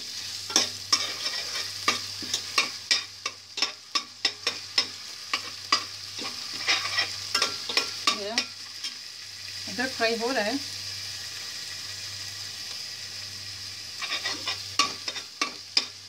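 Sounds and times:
paste sizzling in oil: 0.0 - 16.0
spoon scraping metal pot: 6.2 - 8.0, 14.0 - 15.3.

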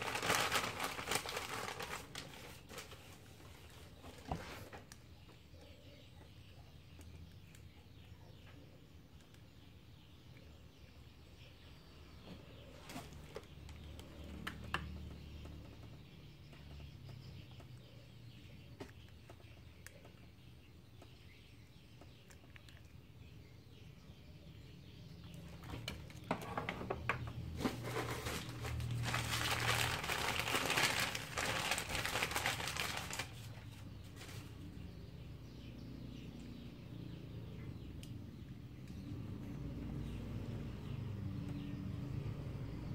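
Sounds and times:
loud crinkling rustle: 0.0 - 4.7, 27.6 - 34.6.

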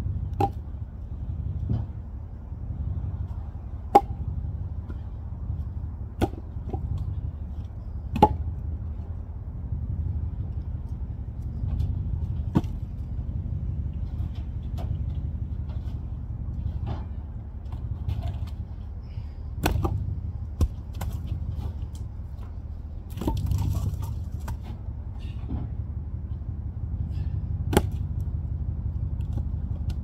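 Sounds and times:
steady low rumble: 0.0 - 30.0
firewood landing on logs: 0.3 - 0.6, 6.2 - 8.6, 11.6 - 13.0, 19.6 - 24.8, 27.6 - 28.2.

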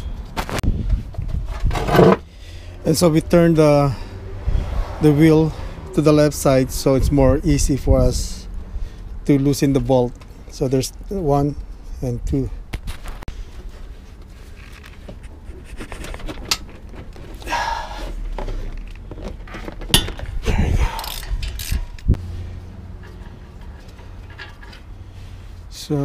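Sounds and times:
metal clicks and scraping: 1.2 - 2.2, 14.2 - 22.2, 22.8 - 25.1
sharp metal clanks: 19.9 - 22.1.

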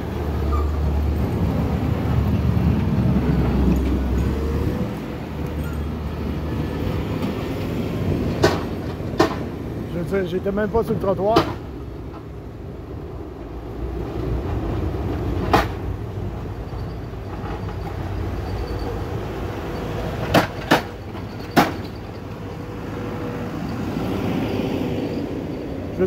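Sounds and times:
plow truck engine: 0.0 - 10.0, 11.6 - 26.0
snow plow engine rumbling: 0.0 - 26.0
sharp knocks: 8.4 - 9.5, 11.3 - 11.7.

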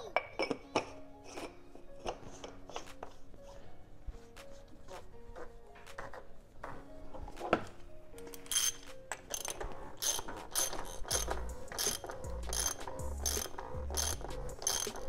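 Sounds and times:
socket ratchet clicking: 8.4 - 15.0.

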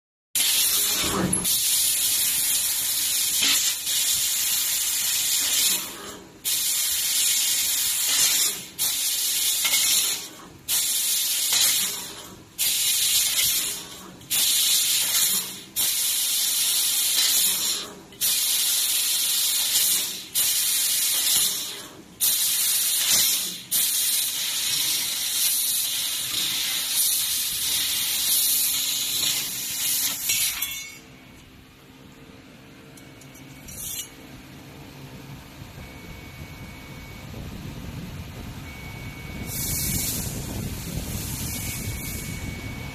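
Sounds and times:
laser cutter gas jet hissing: 0.4 - 31.0, 39.4 - 42.5.

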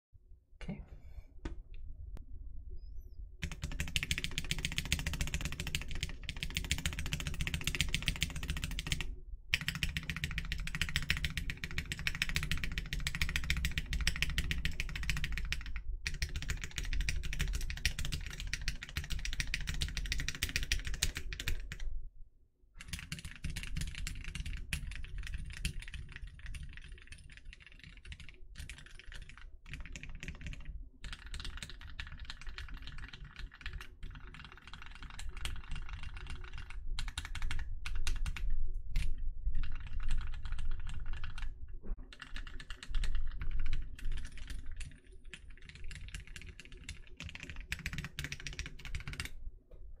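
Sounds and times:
rapid typing on mechanical keyboard: 3.4 - 21.8, 22.8 - 49.4.

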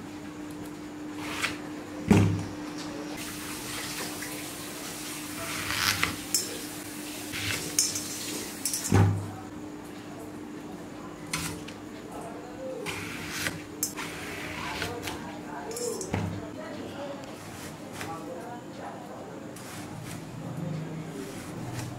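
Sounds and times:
running water splashing: 3.2 - 9.0
utensils and pots clinking: 6.0 - 9.2, 13.8 - 14.1, 15.7 - 16.4.

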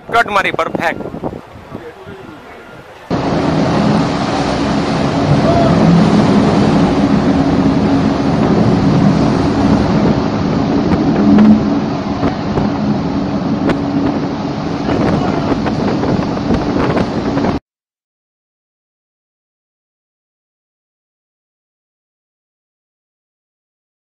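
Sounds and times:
rough sea churning: 0.0 - 17.6
wind buffeting microphone: 0.0 - 17.6
ship engine humming: 1.0 - 17.6.

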